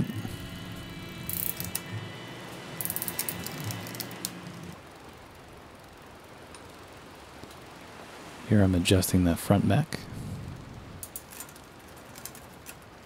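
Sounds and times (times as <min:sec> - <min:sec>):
bicycle chain running over gears: 0:01.3 - 0:01.8, 0:02.8 - 0:04.1.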